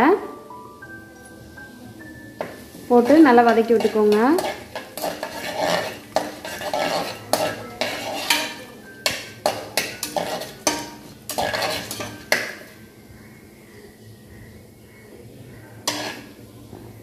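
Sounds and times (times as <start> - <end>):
spices sizzling in oil: 0.6 - 12.9, 15.8 - 16.5
metal spatula scraping a pan: 2.9 - 12.8, 15.8 - 16.4.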